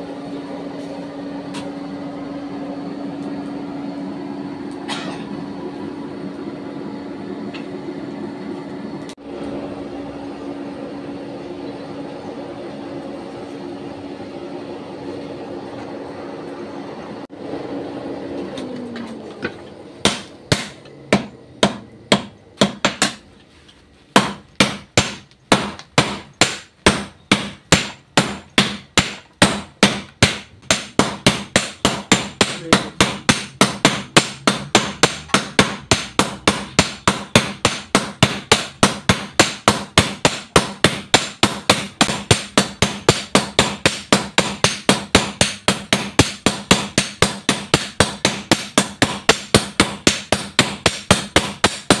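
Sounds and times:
hammers striking metal on anvil: 0:04.9 - 0:05.3, 0:20.0 - 0:23.2, 0:24.1 - 0:52.0.

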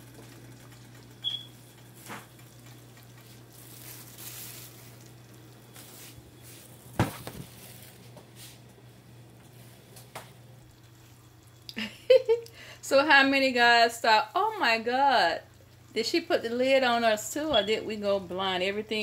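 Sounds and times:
steady low hum: 0:00.0 - 0:19.0
shrimp sizzling in skillet: 0:02.7 - 0:08.6.

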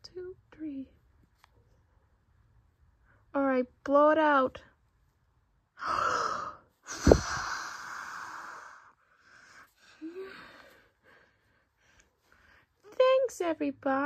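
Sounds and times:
person blowing out candles: 0:05.8 - 0:08.8
breath thump on microphone: 0:06.9 - 0:07.5.

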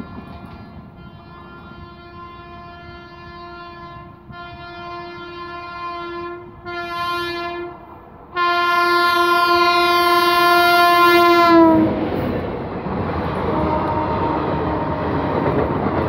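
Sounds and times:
locomotive horn: 0:01.0 - 0:12.0, 0:13.4 - 0:15.6.

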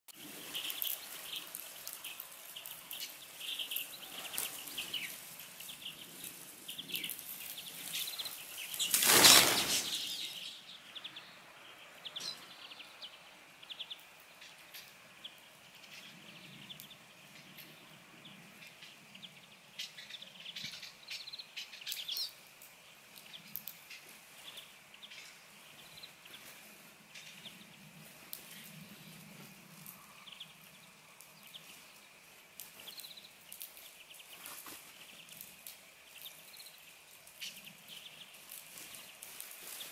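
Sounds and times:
songbirds chirping: 0:00.1 - 0:39.9
flapping wings: 0:07.8 - 0:10.3.

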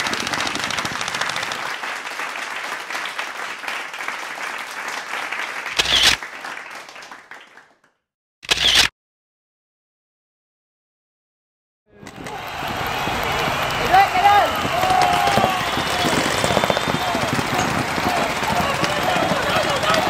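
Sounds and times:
loud bangs: 0:12.1 - 0:20.0
paintball markers firing rapidly: 0:12.1 - 0:20.0.

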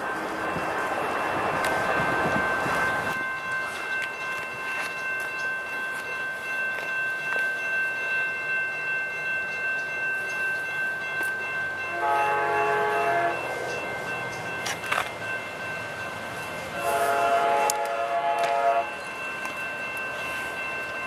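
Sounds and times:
crossing warning bell ringing: 0:00.0 - 0:21.0
train horn chord: 0:11.9 - 0:13.5, 0:16.8 - 0:19.0.

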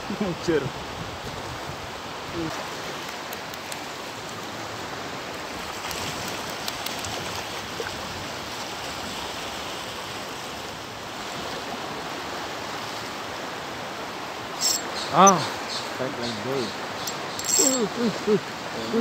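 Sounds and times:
small waves lapping and splashing: 0:00.0 - 0:19.0
light ticks: 0:03.0 - 0:03.9, 0:05.8 - 0:07.2.

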